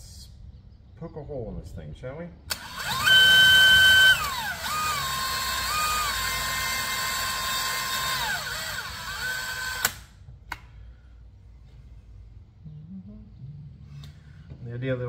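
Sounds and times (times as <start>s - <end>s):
cordless drill boring metal: 2.5s - 10.0s.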